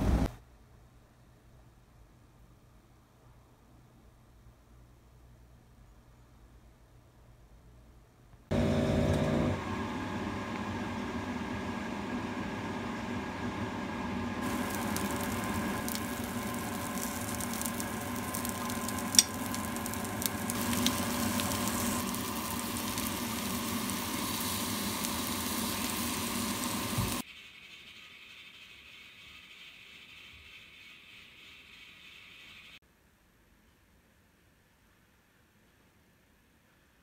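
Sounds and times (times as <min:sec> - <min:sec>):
steady hum: 0:08.5 - 0:27.2
food sizzling in a grill pan: 0:14.4 - 0:27.2.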